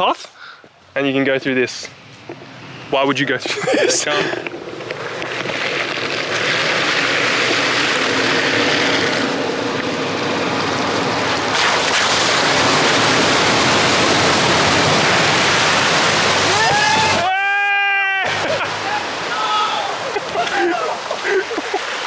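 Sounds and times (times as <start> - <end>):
off-road vehicle engine under load: 2.0 - 16.6
water sloshing and spraying: 10.5 - 17.2, 18.3 - 22.0.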